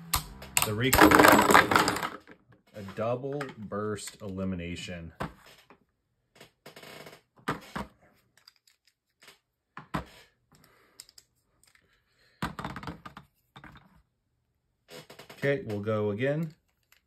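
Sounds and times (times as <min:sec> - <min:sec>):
plastic clattering: 0:01.0 - 0:02.4.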